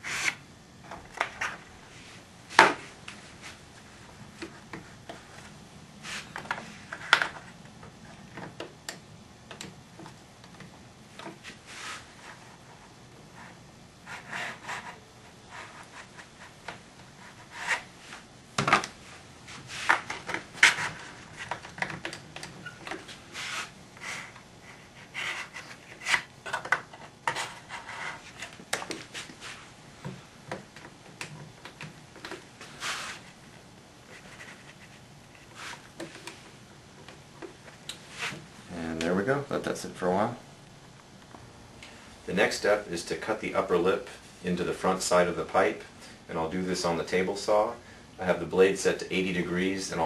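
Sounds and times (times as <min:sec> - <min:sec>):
wood rubbing against wood: 0:00.0 - 0:00.4, 0:11.2 - 0:18.2, 0:19.0 - 0:29.7, 0:30.5 - 0:33.4, 0:34.0 - 0:36.5.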